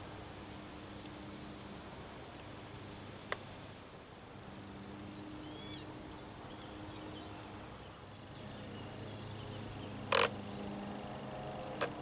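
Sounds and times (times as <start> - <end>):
boat motors humming: 4.2 - 12.0
faint bird chirps: 4.8 - 5.9.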